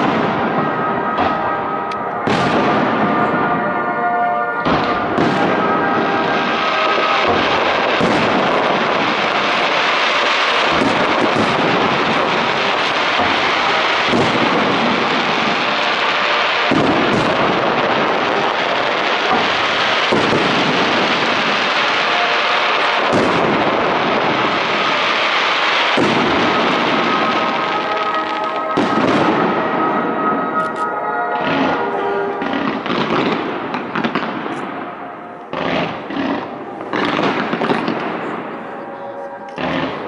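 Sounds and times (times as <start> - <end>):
firework shells bursting with bangs: 0.0 - 40.0.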